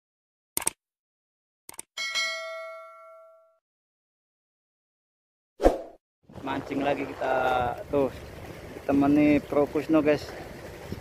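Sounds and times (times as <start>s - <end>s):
bell chime ringing: 2.0s - 3.6s.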